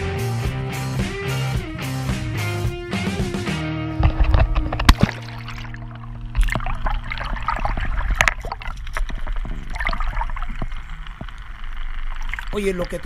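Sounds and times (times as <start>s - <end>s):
low steady hum: 3.9s - 13.0s
water splashing and gurgling: 4.0s - 13.0s.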